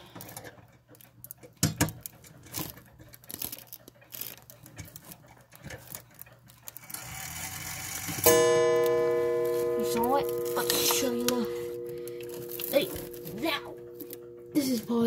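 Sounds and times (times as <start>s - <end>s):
clock movement clicks and knocks: 0.1s - 15.0s
low hum: 8.3s - 15.0s.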